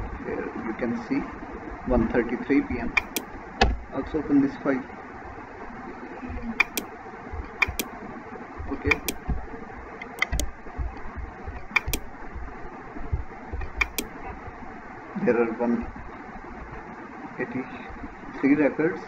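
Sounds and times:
steady background hum: 0:00.0 - 0:19.0
computer mouse double clicks: 0:03.0 - 0:03.3, 0:06.6 - 0:06.9, 0:07.5 - 0:07.9, 0:08.8 - 0:09.3, 0:10.0 - 0:10.5, 0:11.6 - 0:12.1, 0:13.6 - 0:14.1.

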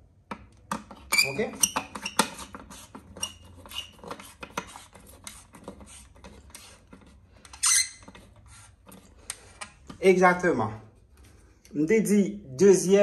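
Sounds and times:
wires and tools clicking and scraping: 0:00.2 - 0:10.1.

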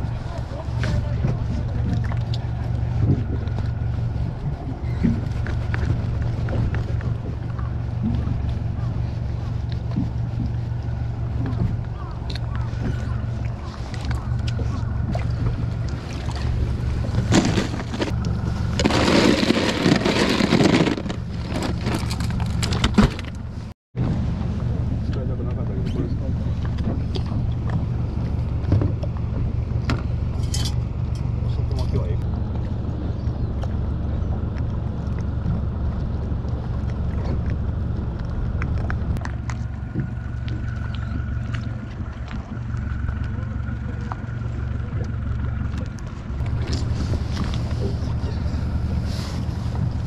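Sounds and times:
steady low rumble: 0:00.0 - 0:50.0
water lapping at a boat: 0:00.0 - 0:50.0
ice cubes clattering in cooler: 0:17.2 - 0:23.4.

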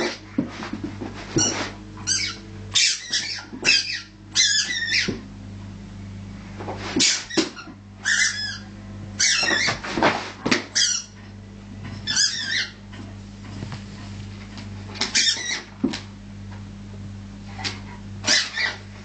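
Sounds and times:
squeaky toy ball squeaking: 0:01.4 - 0:05.2, 0:07.0 - 0:09.8, 0:10.8 - 0:11.2, 0:12.0 - 0:12.8, 0:15.1 - 0:15.7.

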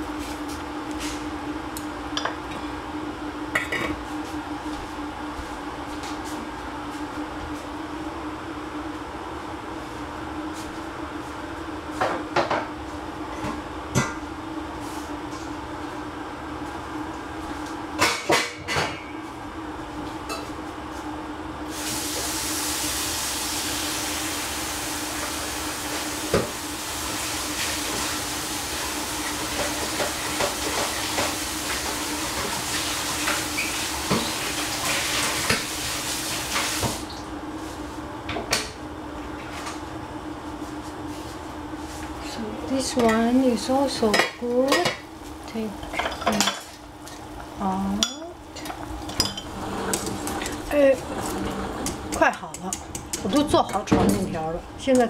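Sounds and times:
kitchen tap running: 0:48.6 - 0:53.9.

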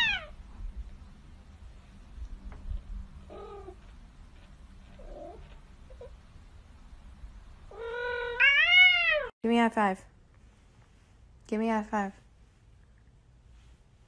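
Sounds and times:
cat meowing loudly: 0:00.0 - 0:00.4, 0:07.7 - 0:09.3.

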